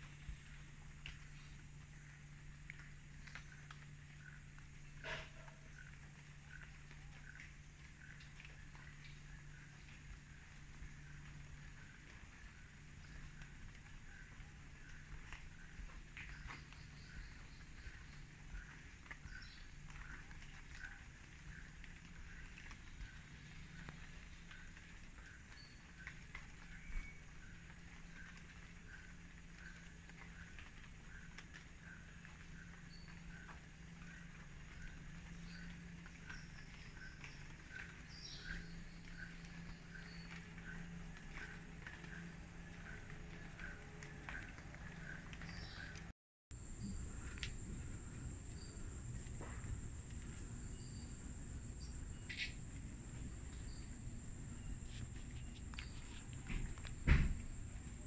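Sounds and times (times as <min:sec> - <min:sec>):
faint chirps and clicks: 0:00.0 - 0:58.0
steady low hum: 0:38.6 - 0:58.0
insects droning: 0:46.5 - 0:58.0
loud thump: 0:56.4 - 0:57.5.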